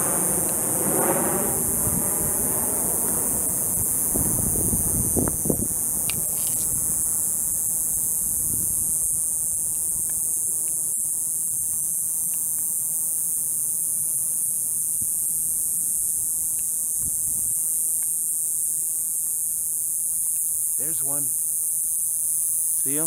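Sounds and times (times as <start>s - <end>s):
wind rumble on microphone: 0.0s - 10.6s, 15.0s - 17.7s
cicadas buzzing: 0.0s - 23.0s.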